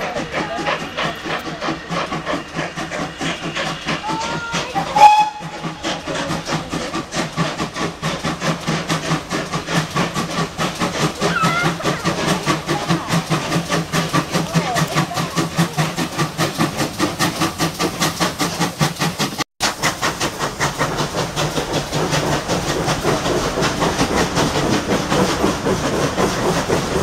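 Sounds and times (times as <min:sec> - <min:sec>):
steam locomotive exhaust beats: 0:00.0 - 0:27.0
steam whistle toot: 0:04.8 - 0:05.7.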